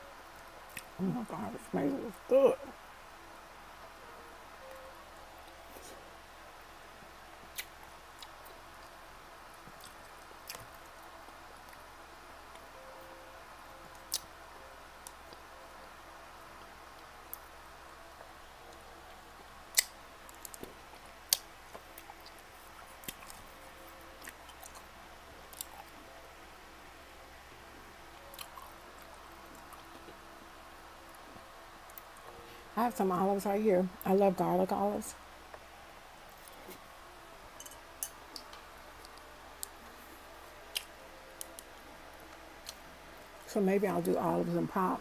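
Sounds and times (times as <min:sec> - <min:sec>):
wet mouth smacks: 0:07.5 - 0:07.7
person chewing with mouth open: 0:09.7 - 0:10.8, 0:28.3 - 0:30.1
chewing food: 0:09.7 - 0:11.0, 0:24.2 - 0:26.0, 0:28.2 - 0:30.2, 0:40.7 - 0:41.6.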